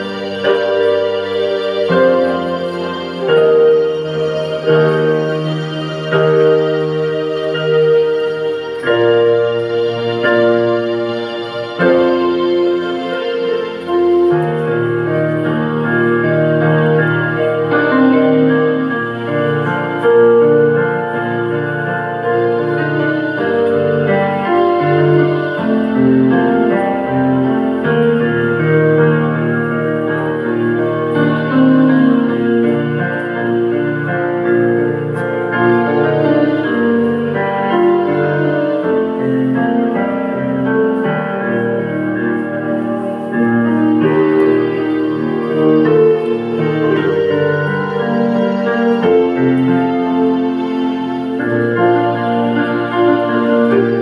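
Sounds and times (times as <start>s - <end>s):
piano and organ chords: 0.0s - 54.0s.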